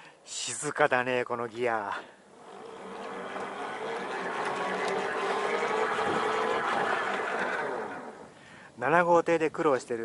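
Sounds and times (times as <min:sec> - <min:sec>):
gearbox whirring: 0:02.3 - 0:08.4.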